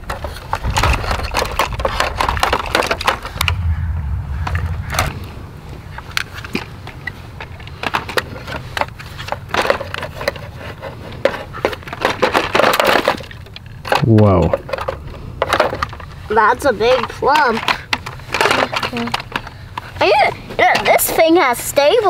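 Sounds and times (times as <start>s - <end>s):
low rumble: 3.4s - 7.7s.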